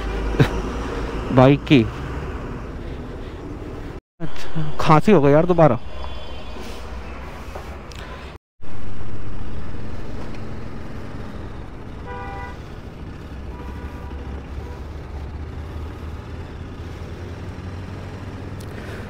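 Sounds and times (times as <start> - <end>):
motorcycle engine drone: 0.0 - 7.3, 8.6 - 19.0
vehicle horn toot: 12.0 - 12.6, 13.4 - 14.8.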